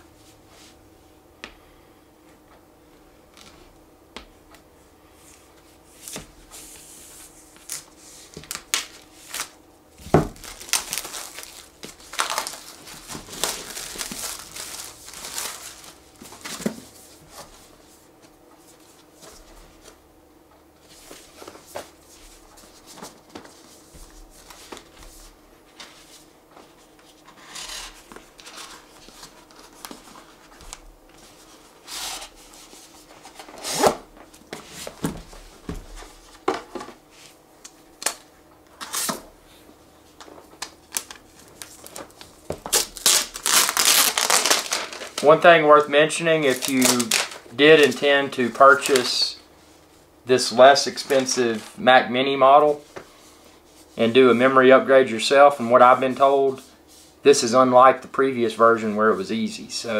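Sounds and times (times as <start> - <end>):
wrap crinkling and tearing: 10.4 - 16.0, 40.9 - 45.4, 46.4 - 49.2
knife cutting wrapping: 42.6 - 45.2, 46.5 - 48.0.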